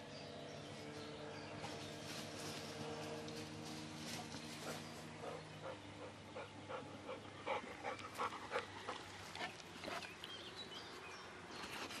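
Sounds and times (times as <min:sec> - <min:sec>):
dog panting and sniffing: 0:04.1 - 0:10.3.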